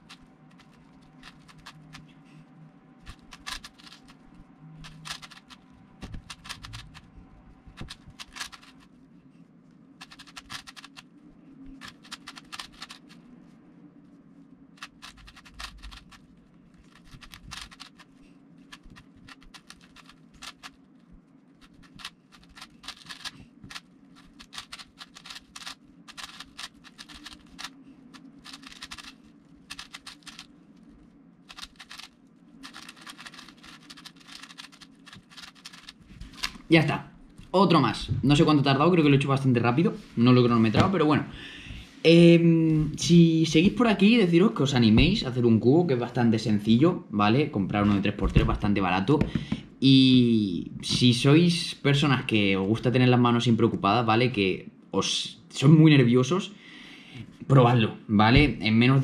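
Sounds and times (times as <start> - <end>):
puzzle cube clicking: 0.0 - 2.0, 3.0 - 4.2, 4.8 - 7.1, 7.8 - 8.8, 10.0 - 11.1, 11.8 - 13.2, 14.8 - 16.2, 16.8 - 20.8, 21.6 - 30.6, 31.4 - 36.6.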